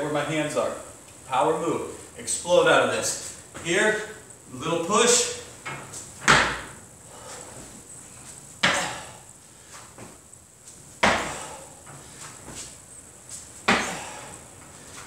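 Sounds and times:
feet thumping on gym floor: 5.6s - 15.0s.

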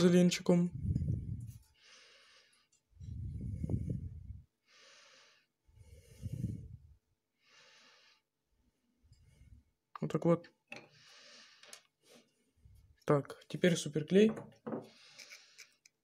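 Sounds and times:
person breathing close to mic: 0.7s - 8.3s, 10.9s - 12.4s, 14.8s - 15.8s.

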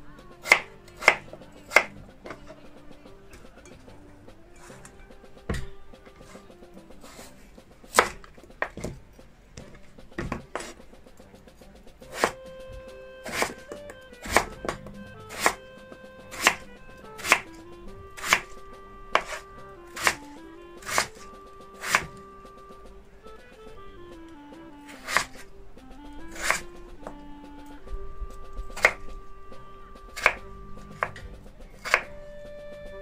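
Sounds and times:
knife chopping on wooden board: 0.4s - 2.0s, 7.0s - 9.0s, 12.1s - 12.4s, 13.2s - 15.6s, 16.3s - 16.6s, 17.2s - 17.5s, 18.2s - 18.5s, 19.2s - 21.2s, 21.8s - 22.2s, 24.9s - 25.4s, 26.3s - 26.6s, 28.8s - 29.0s, 30.2s - 32.1s.

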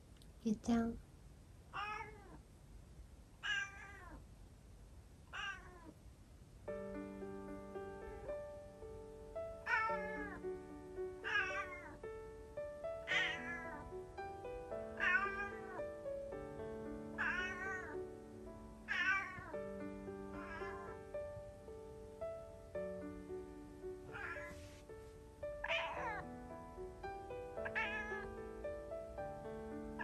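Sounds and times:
cat meowing: 1.7s - 2.4s, 3.4s - 4.2s, 5.3s - 6.0s, 9.6s - 10.4s, 11.2s - 12.0s, 13.0s - 13.8s, 15.0s - 15.8s, 17.1s - 18.0s, 18.9s - 19.6s, 20.4s - 21.0s, 24.1s - 24.6s, 25.6s - 26.2s, 27.6s - 28.3s
gentle background music: 6.6s - 30.0s.

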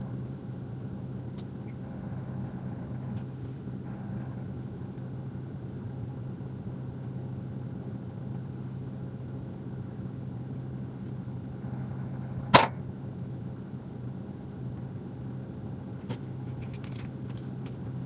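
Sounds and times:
low room hum: 0.0s - 18.0s
sharp loud snap: 12.5s - 12.8s.

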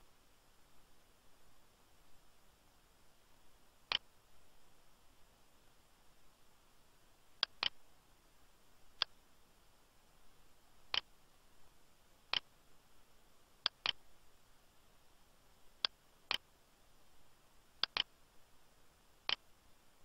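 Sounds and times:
computer mouse clicking: 7.4s - 7.8s, 13.6s - 14.0s, 17.8s - 18.1s.

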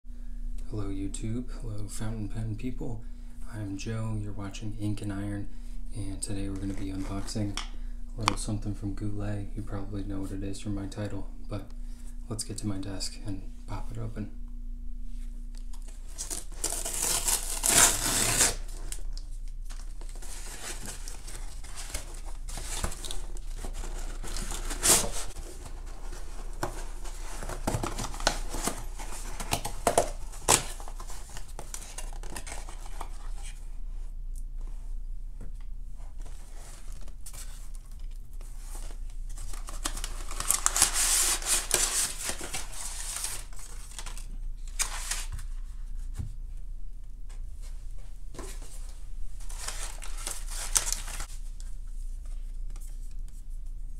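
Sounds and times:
tape being peeled: 15.5s - 33.5s
packing paper rustling: 15.7s - 33.6s, 36.2s - 46.1s, 48.3s - 53.2s
cardboard box torn open: 16.2s - 19.0s.

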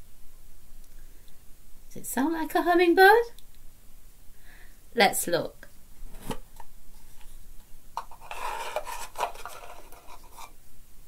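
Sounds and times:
fingers rummaging in cardboard box: 8.1s - 10.5s.

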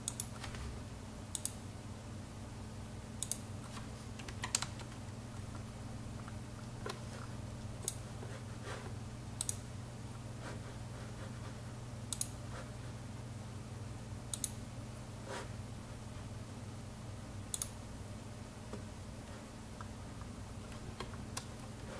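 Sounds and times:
computer mouse clicking: 0.0s - 0.6s, 1.3s - 1.6s, 3.2s - 7.1s, 7.8s - 8.0s, 9.4s - 9.6s, 12.1s - 12.4s, 14.3s - 14.6s, 17.5s - 17.8s
steady low hum: 0.0s - 21.9s.

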